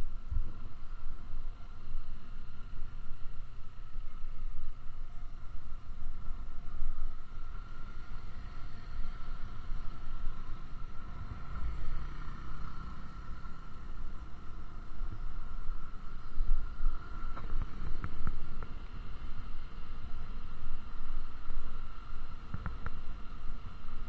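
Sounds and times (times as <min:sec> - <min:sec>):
wind rumbling over microphone: 0:00.0 - 0:24.0
motorcycle running: 0:07.3 - 0:20.5.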